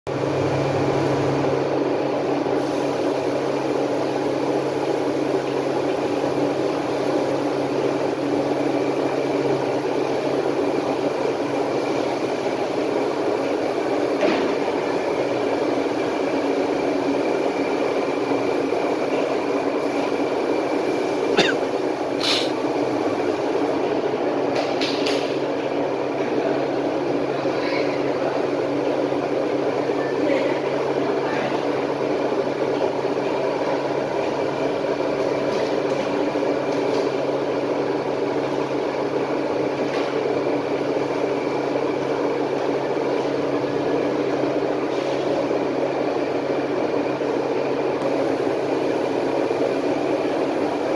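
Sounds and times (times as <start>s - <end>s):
frying machine mechanical drone: 0.1s - 50.9s.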